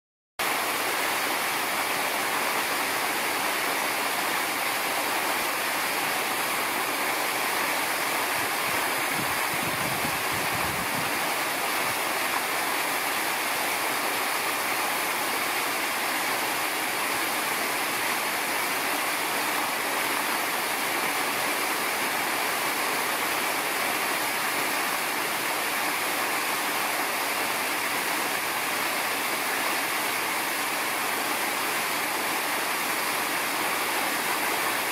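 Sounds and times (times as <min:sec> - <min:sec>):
running water rushing: 0:00.4 - 0:34.9.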